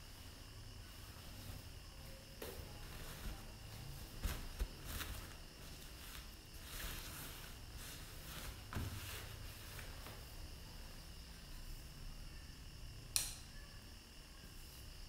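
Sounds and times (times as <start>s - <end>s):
cloth rustling: 0.0s - 11.0s
steady background hiss: 0.0s - 15.0s.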